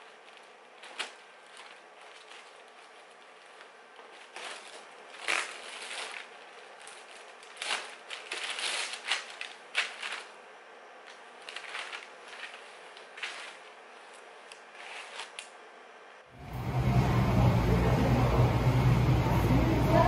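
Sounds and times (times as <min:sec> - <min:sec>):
plastic bag crinkling: 0:00.0 - 0:15.6.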